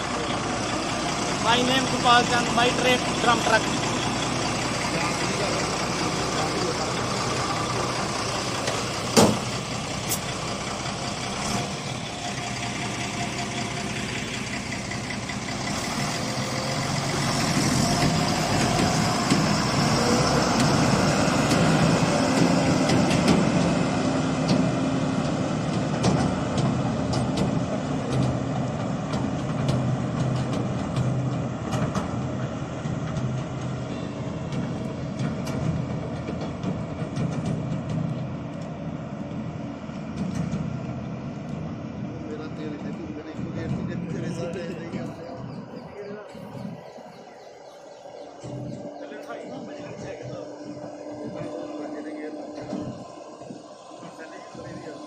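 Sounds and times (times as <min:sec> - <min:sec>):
diesel truck engine: 0:00.0 - 0:55.0
sharp bang: 0:09.1 - 0:10.3.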